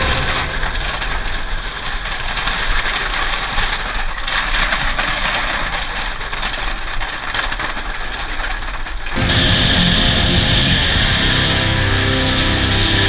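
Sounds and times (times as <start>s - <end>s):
dirt bike engine running: 9.2s - 13.0s.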